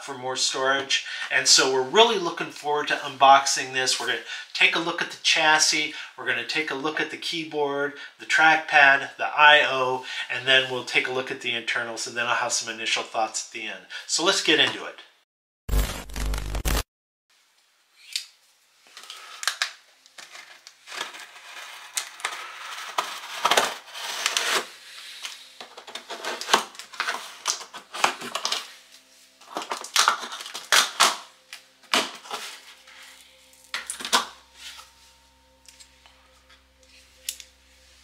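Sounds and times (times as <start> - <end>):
cardboard box scraping and crackling: 20.3 - 24.8.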